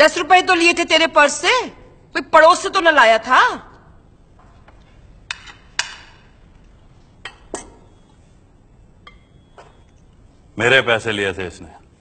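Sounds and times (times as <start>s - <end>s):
plates and cutlery clinking: 7.2s - 8.2s, 9.0s - 10.2s.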